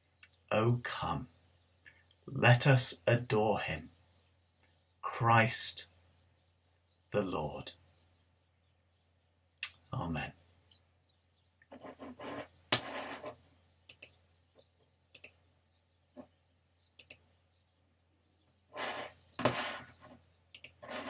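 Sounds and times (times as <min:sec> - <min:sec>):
sharp clicks: 0:13.9 - 0:14.2, 0:15.1 - 0:15.4, 0:17.0 - 0:17.3, 0:20.5 - 0:20.9.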